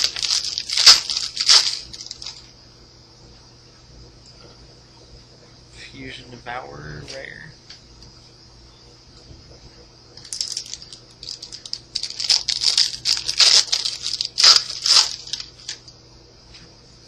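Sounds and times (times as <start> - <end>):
foil wrapper tearing and crinkling: 0.0 - 2.4, 10.2 - 15.8.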